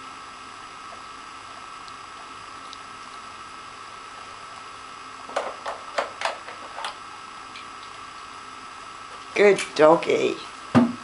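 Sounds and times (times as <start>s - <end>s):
sharp knock: 10.8s - 11.0s.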